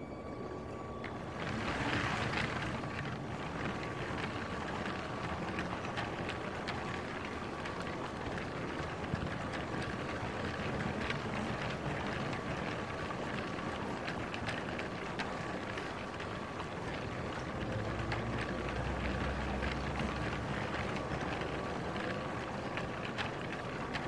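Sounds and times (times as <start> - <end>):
wheels rattling on plastic track: 1.0 - 24.0.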